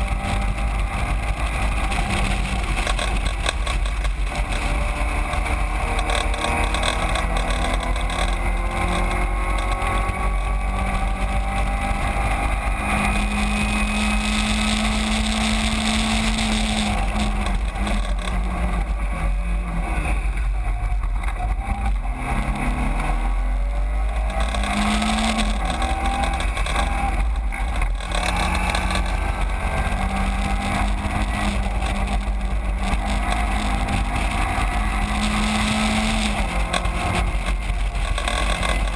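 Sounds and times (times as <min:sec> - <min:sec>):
race car engine through gears: 0:00.0 - 0:38.9.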